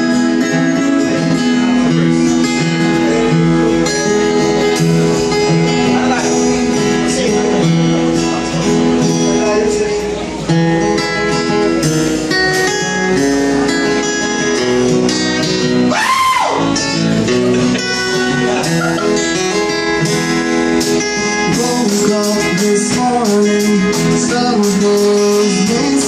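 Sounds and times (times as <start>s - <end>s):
electric bass: 0.0s - 26.0s
strummed acoustic guitar: 0.0s - 26.0s
man singing: 20.9s - 26.0s.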